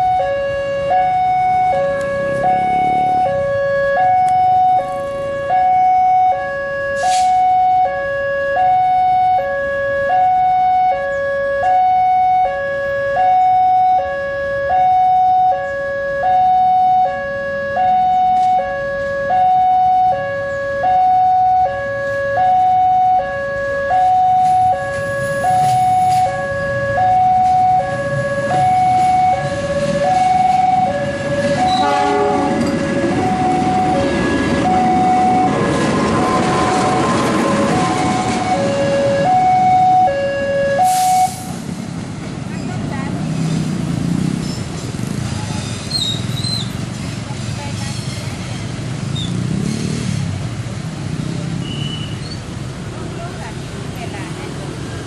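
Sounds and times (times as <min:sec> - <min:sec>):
two-tone crossing alarm: 0:00.0 - 0:41.6
train rumble: 0:23.9 - 0:51.2.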